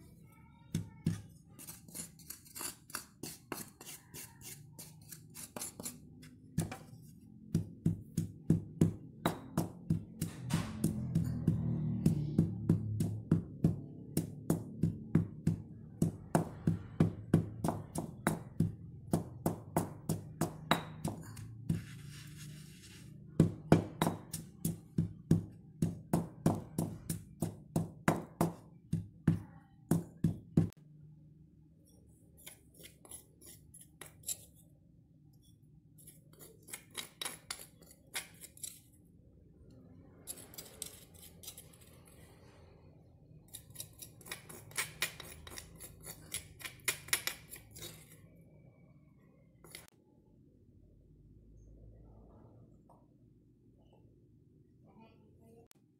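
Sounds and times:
scraping stone mortar: 1.1 - 13.4, 20.0 - 25.1, 32.3 - 34.7, 35.4 - 39.0, 40.2 - 42.4, 43.5 - 48.4, 49.6 - 49.9
stone pestle knocking and grinding: 1.9 - 4.6, 6.6 - 22.0, 23.4 - 30.8, 36.4 - 38.8, 43.8 - 48.1.

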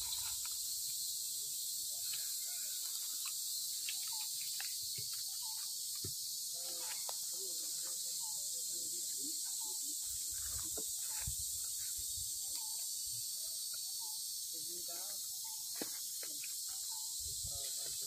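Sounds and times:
faint chirps and squeaks: 0.0 - 18.0
insects droning: 0.0 - 18.0.

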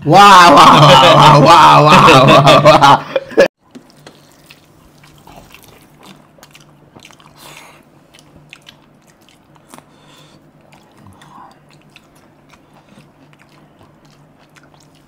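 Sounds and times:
loud exclamation: 0.0 - 2.2
faint steady hum: 0.0 - 15.0
soft chewing: 3.6 - 15.0.

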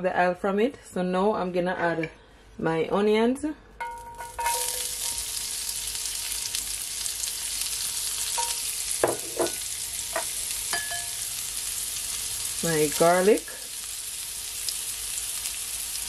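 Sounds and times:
onions sizzling in hot oil: 3.8 - 16.0.

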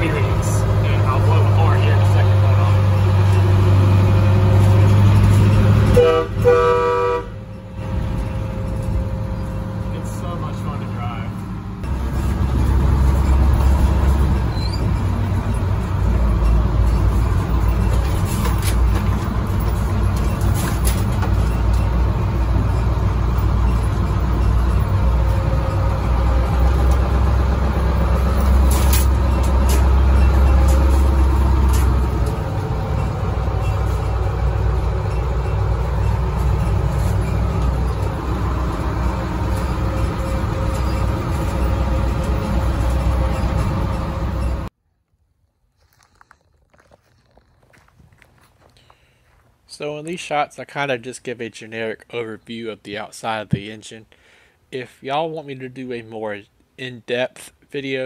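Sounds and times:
low engine rumble: 0.0 - 44.8
knocks and rattles: 11.8 - 44.7.

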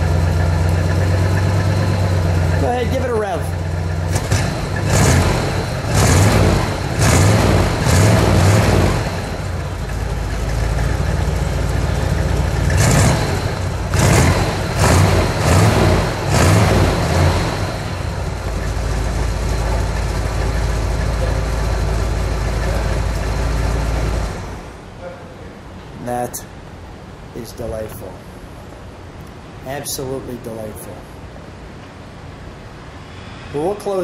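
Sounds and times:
car engine revving and idling: 0.0 - 24.8.

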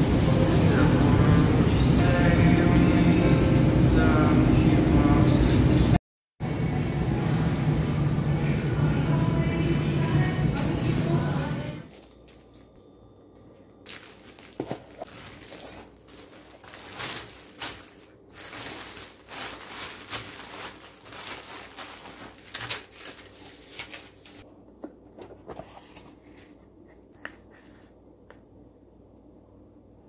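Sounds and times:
plastic bag rustling: 11.8 - 12.8, 13.8 - 24.4.

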